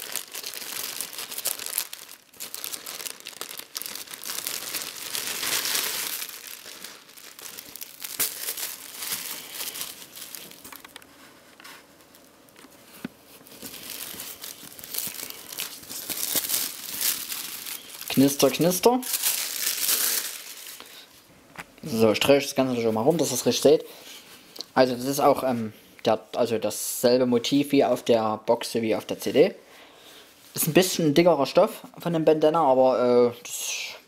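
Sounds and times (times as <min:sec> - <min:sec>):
plastic wrapping crackling: 0:00.0 - 0:23.7.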